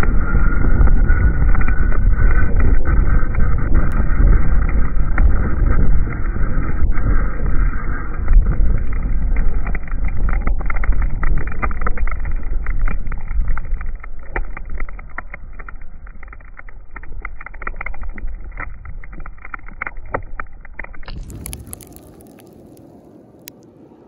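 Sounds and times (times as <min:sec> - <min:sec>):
debris clicking on camera: 0:08.1 - 0:24.0.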